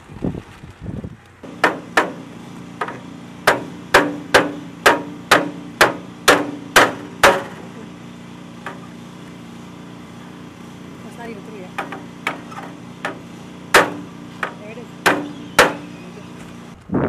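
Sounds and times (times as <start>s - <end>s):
steady low hum: 1.3s - 17.0s
hammer driving nails into wood: 1.5s - 2.2s, 2.8s - 7.6s, 11.8s - 15.8s.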